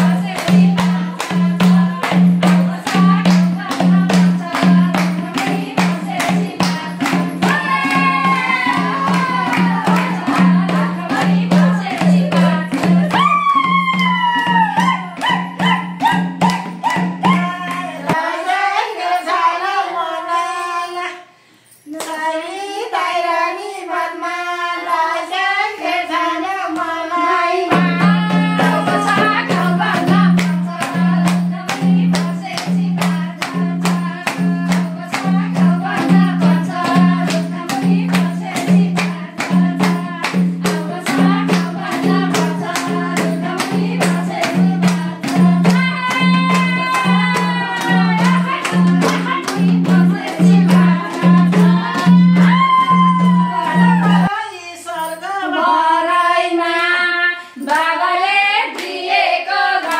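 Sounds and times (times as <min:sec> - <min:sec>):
high voice singing: 0:06.2 - 0:18.6, 0:27.7 - 0:30.9, 0:43.6 - 0:55.0.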